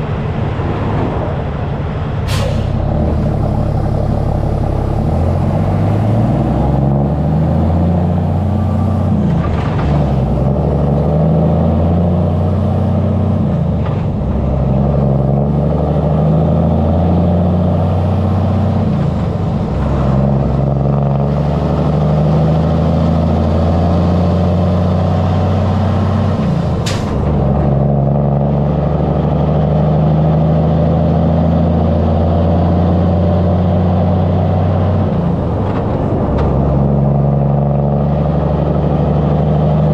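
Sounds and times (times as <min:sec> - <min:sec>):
diesel engine idling: 0:01.4 - 0:09.5
sharp hiss: 0:02.3 - 0:02.9.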